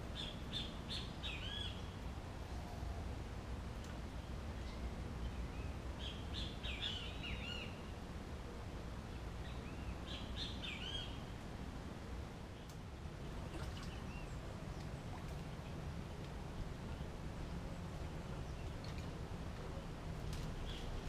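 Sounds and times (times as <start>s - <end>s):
birds chirping: 12.5s - 21.0s.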